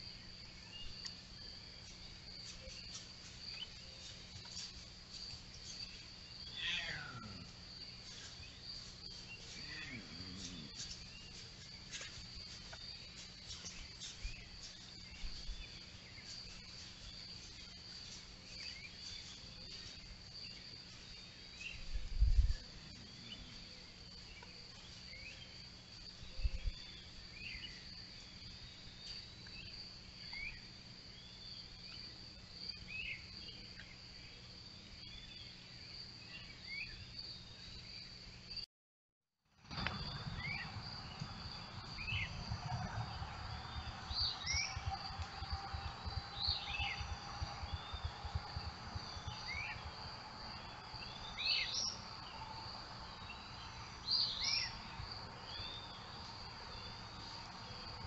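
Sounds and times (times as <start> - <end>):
crickets trilling: 0.0 - 38.6, 39.6 - 58.0
birds chirping: 39.7 - 58.0
dull low thumps: 41.2 - 50.1.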